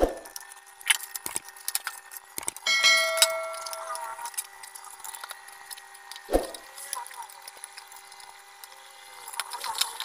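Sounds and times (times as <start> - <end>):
bell-like chime: 2.7 - 4.2.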